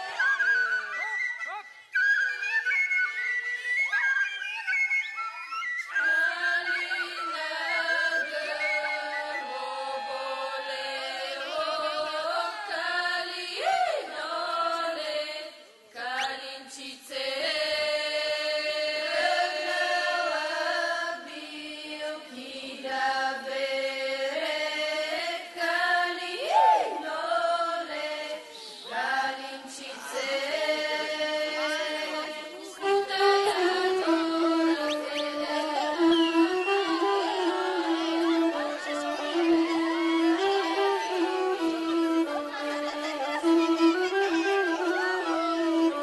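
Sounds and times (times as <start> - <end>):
women singing without instruments: 6.0 - 38.8.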